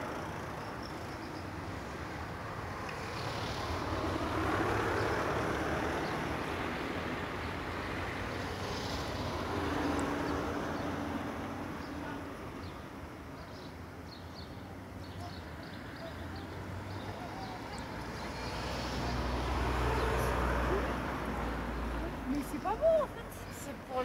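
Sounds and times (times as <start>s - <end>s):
street traffic rumble: 0.0s - 24.0s
vehicle passing by: 2.8s - 12.3s, 16.0s - 24.0s.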